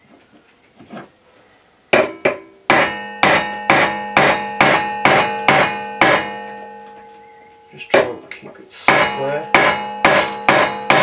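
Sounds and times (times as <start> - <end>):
hammer striking metal: 1.9 - 7.2, 7.8 - 8.2, 8.8 - 11.0.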